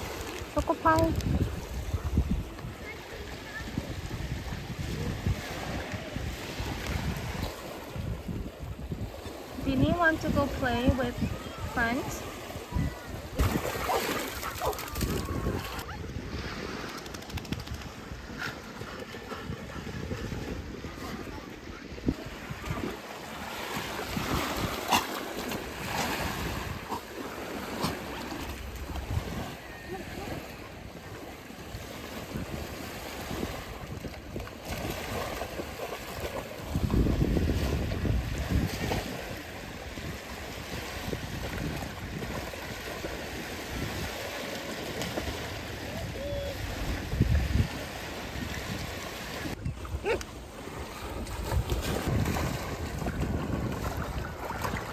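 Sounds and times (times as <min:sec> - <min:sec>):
wind buffeting microphone: 0:00.0 - 0:27.1, 0:27.8 - 0:54.9
small waves lapping on shore: 0:00.0 - 0:54.9
dogs and person splashing: 0:12.2 - 0:16.0, 0:22.3 - 0:30.6, 0:32.0 - 0:45.8, 0:47.7 - 0:54.9.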